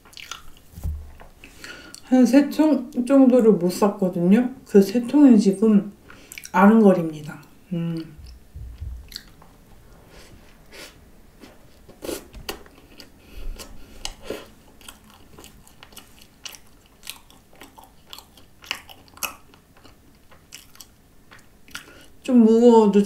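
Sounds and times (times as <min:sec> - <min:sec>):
chewing crisp pastry: 0:00.0 - 0:00.7, 0:06.2 - 0:06.6, 0:09.1 - 0:09.4, 0:11.4 - 0:22.2.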